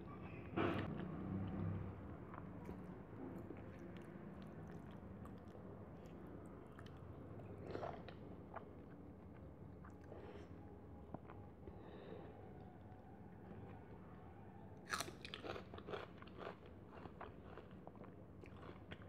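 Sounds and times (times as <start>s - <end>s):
close chewing: 2.2s - 10.1s, 14.9s - 19.0s.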